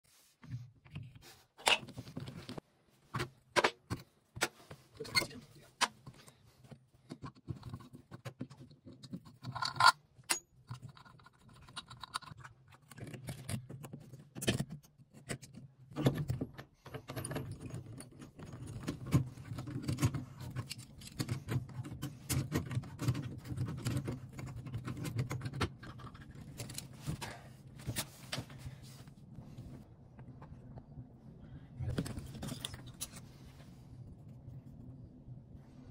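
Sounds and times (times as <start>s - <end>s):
low steady hum: 17.1s - 35.9s.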